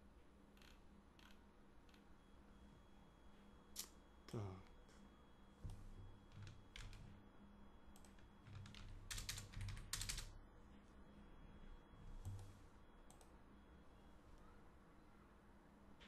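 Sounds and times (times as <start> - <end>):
computer keyboard keystrokes: 8.0 - 10.3.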